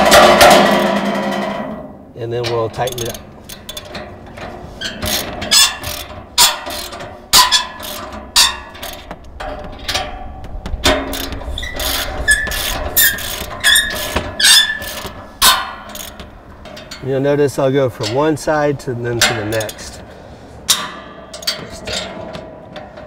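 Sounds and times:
short high squeak: 0:11.6 - 0:15.1.

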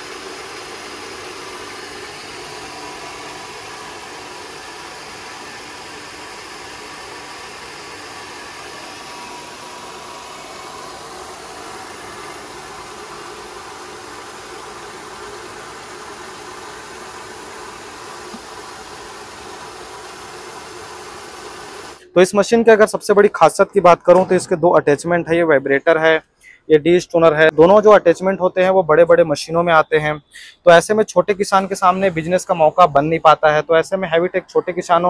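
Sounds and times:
rice mill machine whirring: 0:00.0 - 0:22.1.

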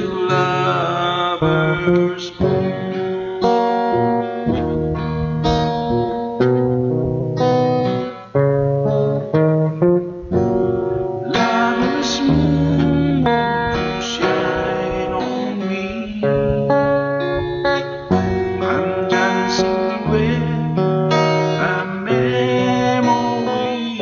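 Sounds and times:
person singing: 0:00.0 - 0:04.8, 0:10.3 - 0:24.0
acoustic guitar strumming chords: 0:00.0 - 0:24.0.

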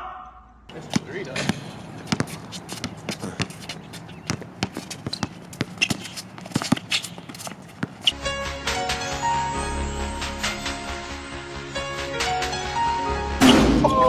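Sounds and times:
sneakers shuffling and stepping: 0:00.7 - 0:08.2
basketball bouncing on hard court: 0:00.8 - 0:08.2.

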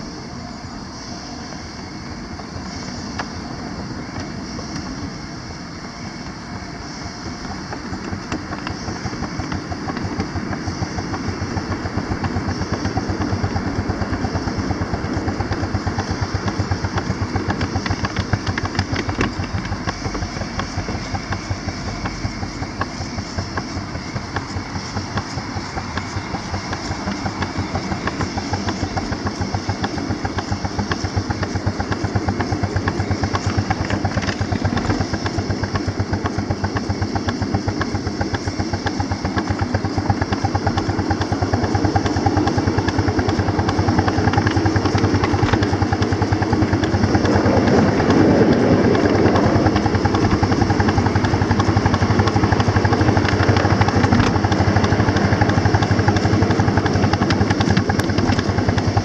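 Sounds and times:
steam locomotive exhaust chuffing: 0:00.0 - 0:59.0.

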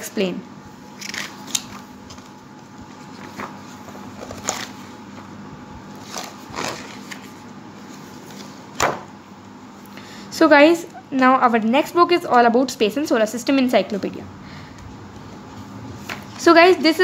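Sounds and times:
faint steady hum: 0:00.0 - 0:17.0
pages turning: 0:01.0 - 0:05.3, 0:06.0 - 0:08.9.

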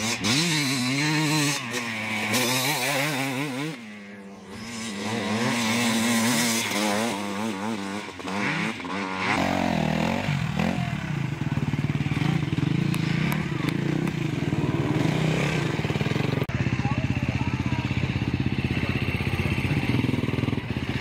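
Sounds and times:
dirt bike engines revving: 0:00.0 - 0:21.0.

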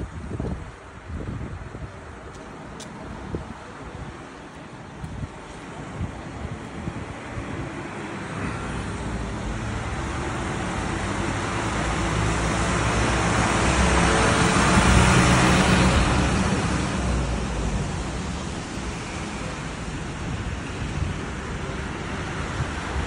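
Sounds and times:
vehicle passing by: 0:06.9 - 0:19.9.

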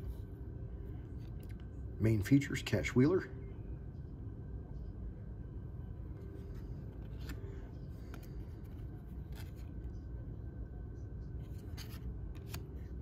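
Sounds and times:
steady low hum: 0:00.0 - 0:13.0
trading cards rustling: 0:06.2 - 0:10.1, 0:11.4 - 0:13.0.

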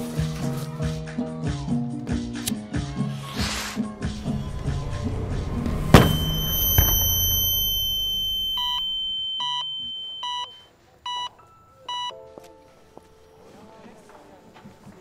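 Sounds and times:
firecracker bang: 0:03.3 - 0:09.1
high ringing tone: 0:03.9 - 0:10.7
electronic beep: 0:04.1 - 0:11.3.

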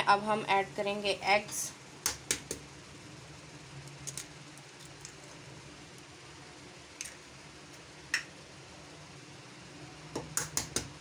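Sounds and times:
low steady hum: 0:00.0 - 0:11.0
egg tapped on ceramic bowl: 0:10.1 - 0:10.9.

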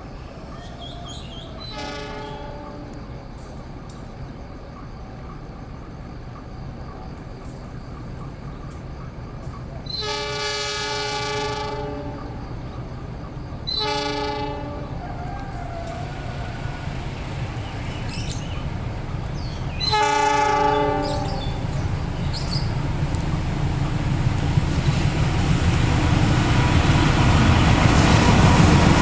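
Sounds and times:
diesel locomotive rumbling: 0:00.0 - 0:29.0
locomotive horn blasts: 0:01.7 - 0:03.0, 0:09.9 - 0:12.4, 0:13.7 - 0:15.1, 0:19.8 - 0:21.6.

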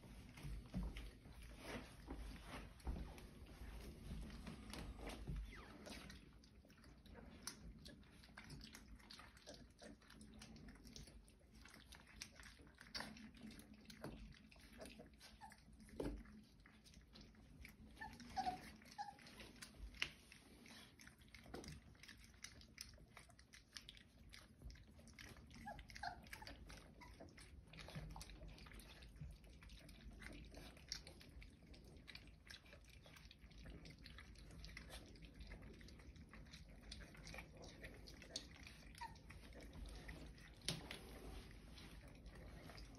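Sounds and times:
puppies eating from metal tin: 0:03.8 - 0:42.9
puppy squeaks: 0:18.0 - 0:19.4.

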